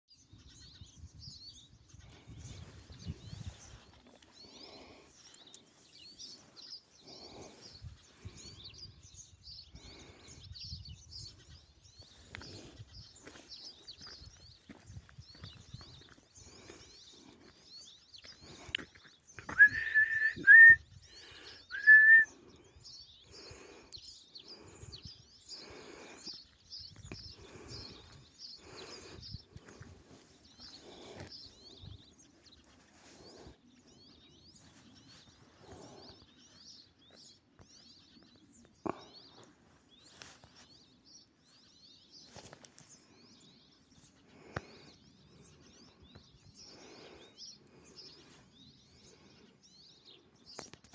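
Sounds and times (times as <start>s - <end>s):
small birds chirping: 0.0s - 50.9s
footsteps on gravel: 12.2s - 16.8s.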